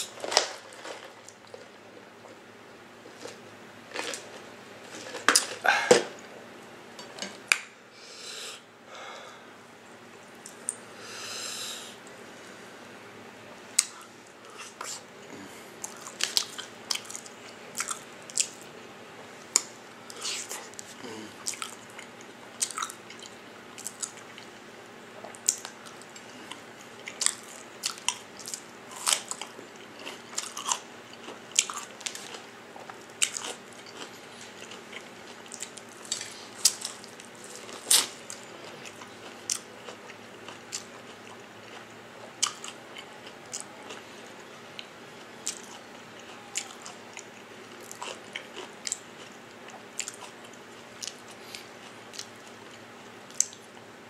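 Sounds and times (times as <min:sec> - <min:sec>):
person chewing crunchy food: 0:03.0 - 0:06.2, 0:13.8 - 0:24.6, 0:25.2 - 0:53.8.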